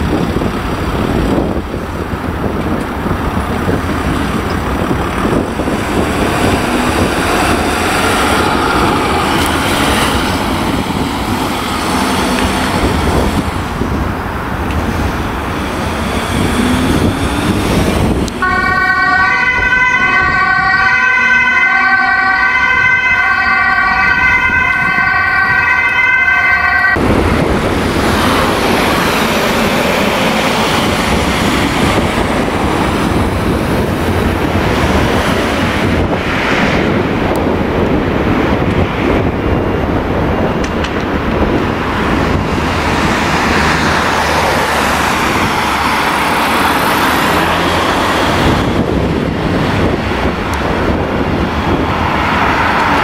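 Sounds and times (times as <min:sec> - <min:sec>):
road traffic noise: 0:00.0 - 0:53.0
wind: 0:00.0 - 0:53.0
ambulance siren wailing: 0:15.2 - 0:34.6
two-tone siren horn: 0:18.3 - 0:27.0.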